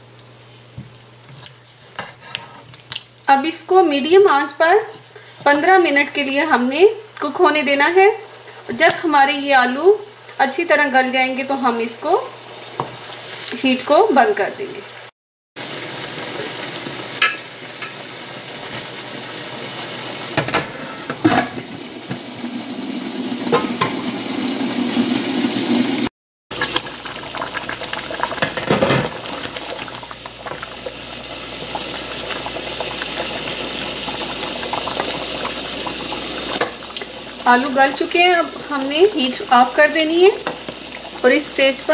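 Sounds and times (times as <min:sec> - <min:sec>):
curry simmering and bubbling: 0:26.5 - 0:41.4.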